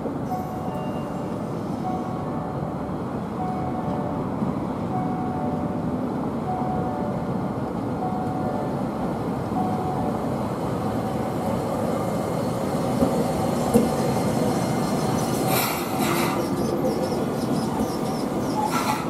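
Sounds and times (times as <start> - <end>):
tram wheels rumbling on rail: 0.0 - 19.0
sharp clacks of tram wheels: 12.9 - 19.0.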